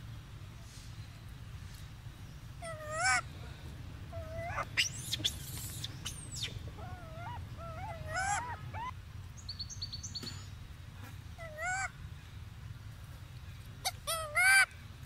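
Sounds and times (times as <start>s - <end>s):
steady low rumble: 0.0s - 13.8s
high-pitched animal calls: 2.6s - 3.2s, 4.1s - 8.9s, 11.4s - 11.9s, 13.8s - 14.7s.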